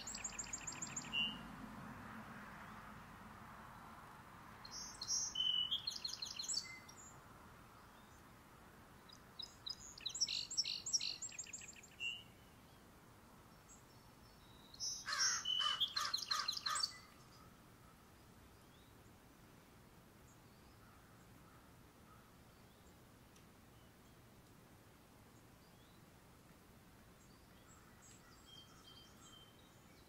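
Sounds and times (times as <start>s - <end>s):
birds chirping: 0.0s - 1.4s, 4.6s - 7.2s, 9.0s - 12.9s, 13.5s - 19.2s.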